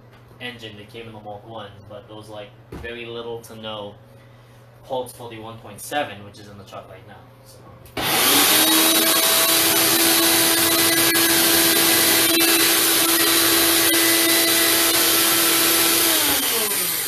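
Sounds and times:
blender motor whining: 8.0s - 17.0s.

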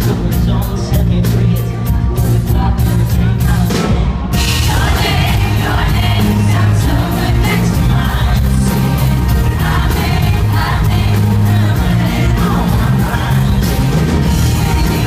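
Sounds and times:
live rock band playing: 0.0s - 15.0s
man singing lead vocal: 0.0s - 15.0s.

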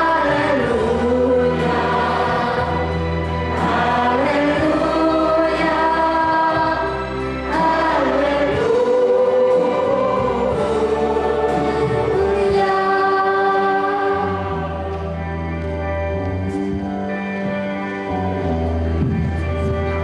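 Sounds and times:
choir singing: 0.0s - 15.2s
low steady accompaniment: 0.0s - 20.0s.

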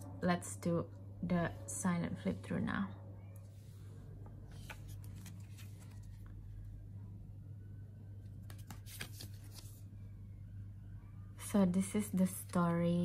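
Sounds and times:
cards rustling and sliding: 4.5s - 6.3s, 8.4s - 9.8s.

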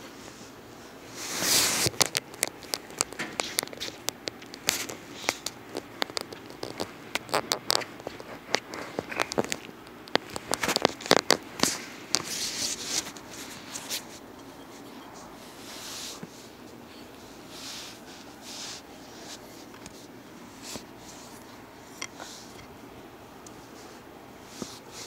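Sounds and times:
phone handling crackles and clicks: 1.8s - 14.2s.

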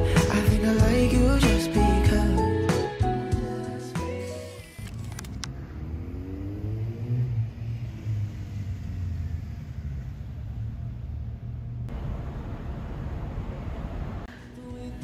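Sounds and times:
vehicle engine accelerating: 4.7s - 14.3s
road traffic rumble: 4.8s - 14.6s.

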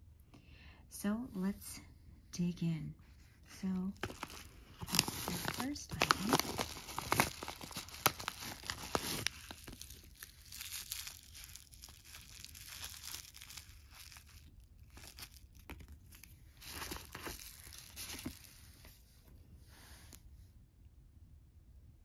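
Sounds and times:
plastic bag crinkling: 3.8s - 19.0s
paper envelope tearing: 4.0s - 18.6s.

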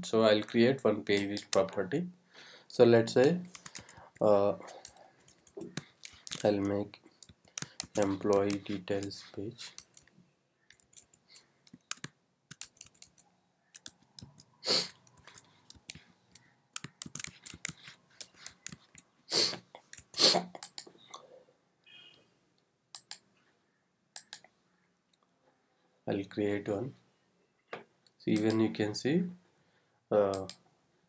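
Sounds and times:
keyboard typing: 3.2s - 19.2s, 19.8s - 21.3s, 22.9s - 23.3s, 28.3s - 28.7s.

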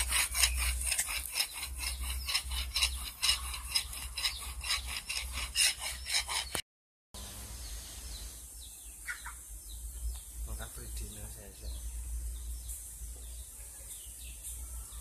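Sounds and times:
file rasping on steel blade: 0.0s - 6.6s.

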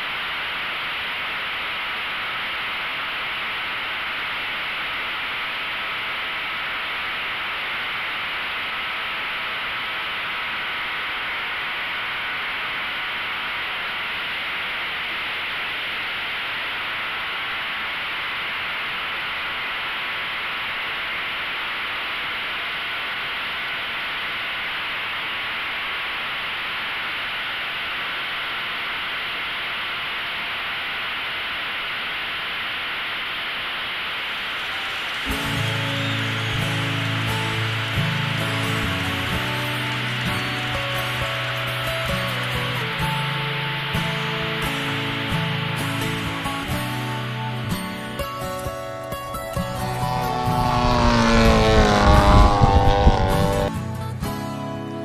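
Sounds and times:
wind and prop wash hiss: 31.6s - 44.8s, 49.5s - 53.8s
model airplane motor whining: 49.6s - 53.8s.

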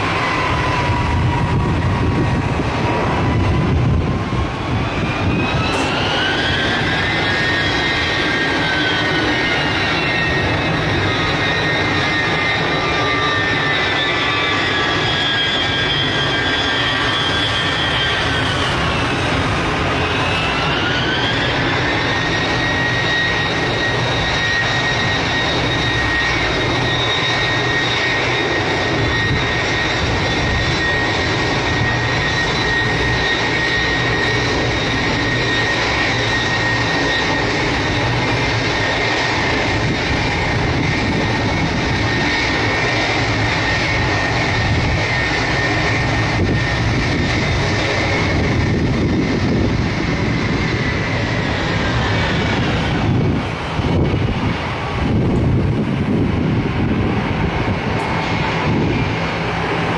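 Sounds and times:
jet engines roaring and whining: 0.0s - 59.9s.

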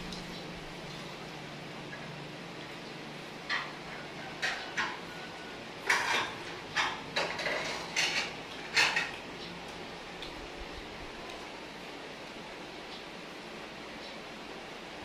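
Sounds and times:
plates clinking and scraping: 3.4s - 9.2s.

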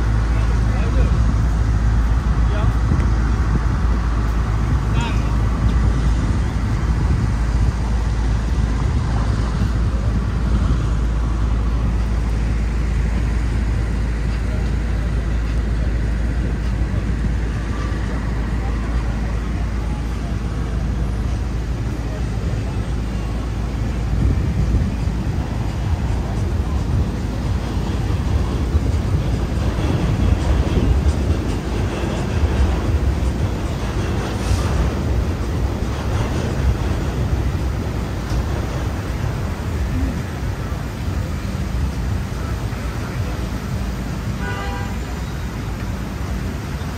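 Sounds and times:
people chattering: 0.0s - 46.9s
traffic rumble: 0.0s - 46.9s.

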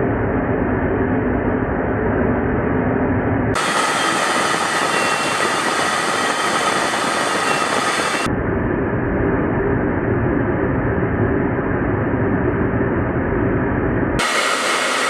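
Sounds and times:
jet aircraft roar in flight: 0.0s - 15.0s
thin steady whine: 3.6s - 8.4s, 14.2s - 15.0s.

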